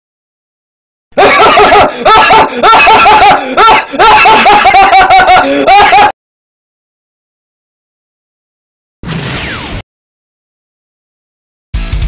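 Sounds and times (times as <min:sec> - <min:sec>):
cartoon boy laughing: 0:01.2 - 0:06.2.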